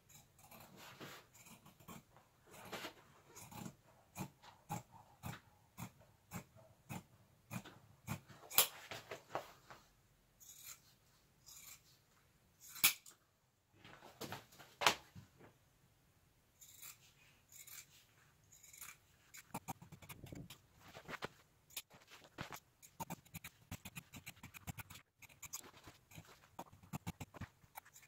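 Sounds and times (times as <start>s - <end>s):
scissors snipping: 12.6s - 13.1s, 21.7s - 28.0s
material rustling: 20.4s - 22.7s.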